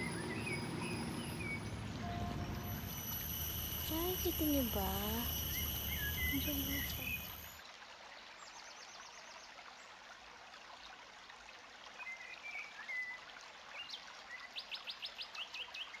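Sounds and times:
birds chirping: 0:00.0 - 0:07.6
water hissing: 0:00.0 - 0:07.6
whistled bird notes: 0:00.0 - 0:07.6.

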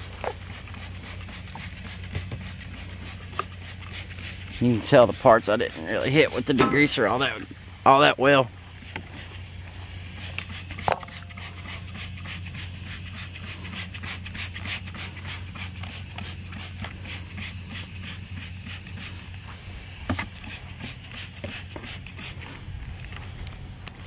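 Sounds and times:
pressure washer engine running: 0:00.0 - 0:24.0
footsteps on grass: 0:18.9 - 0:24.0.

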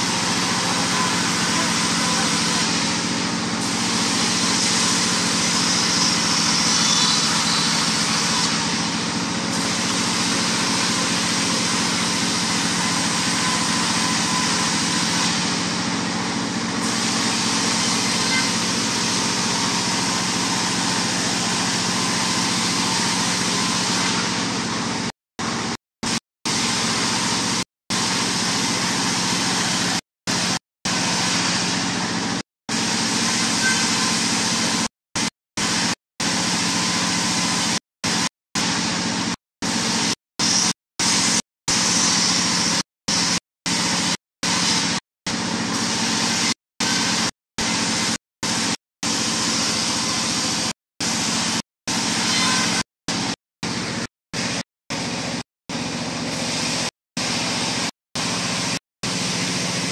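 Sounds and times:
diesel engine running: 0:00.0 - 0:34.9.

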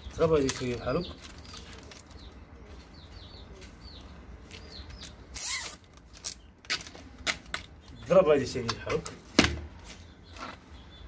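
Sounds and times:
plastic strap zipping scrape: 0:05.4 - 0:06.3.

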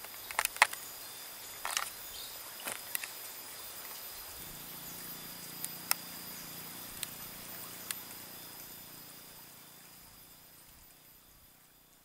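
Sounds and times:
high-pitched insect drone: 0:00.0 - 0:12.0
faint low hum: 0:03.5 - 0:12.0.

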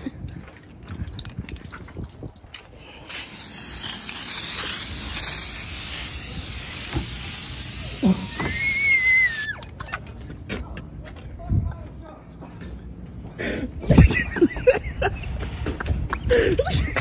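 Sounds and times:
spray paint can hissing: 0:02.8 - 0:09.8.

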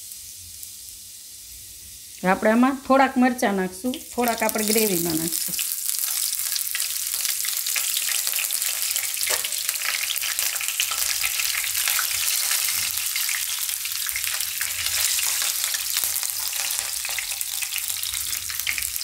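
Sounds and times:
garlic sizzling in hot oil: 0:00.0 - 0:19.0.

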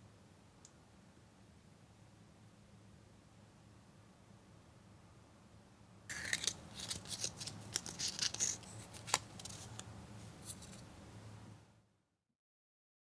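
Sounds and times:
paper rustling and crinkling: 0:06.1 - 0:09.8, 0:10.4 - 0:10.8.

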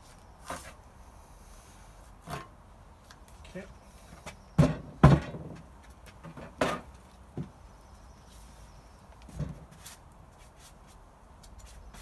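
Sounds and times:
wooden knocks and thumps: 0:04.2 - 0:07.6, 0:09.3 - 0:09.8.

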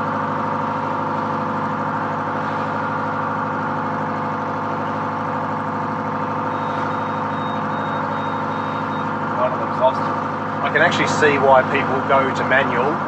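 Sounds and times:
boat engine droning: 0:00.0 - 0:13.0
faint high electronic beeping: 0:06.5 - 0:09.1.

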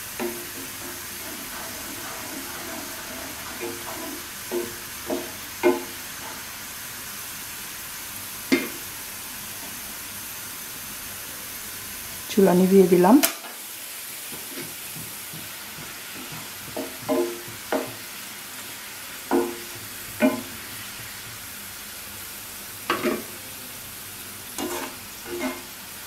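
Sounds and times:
onions sizzling in oil: 0:00.0 - 0:26.0
spatula scraping a pan: 0:00.2 - 0:06.5, 0:19.3 - 0:21.2, 0:24.6 - 0:25.8.

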